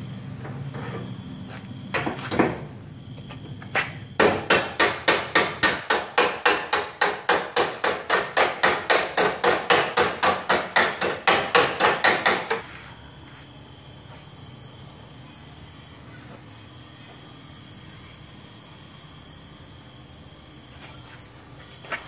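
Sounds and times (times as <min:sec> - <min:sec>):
hammer beating sheet steel: 0:04.2 - 0:12.7.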